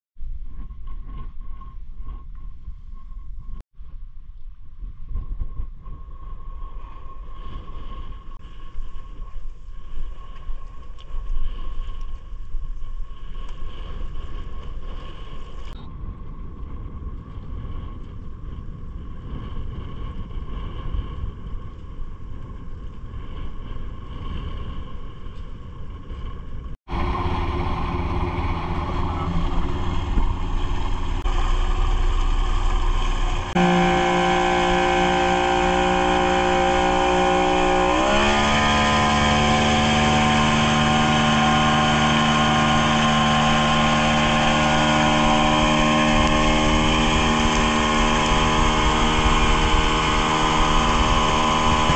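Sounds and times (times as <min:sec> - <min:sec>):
outboard motor running: 0:26.9 - 0:51.9
water rushing from wake: 0:26.9 - 0:51.9.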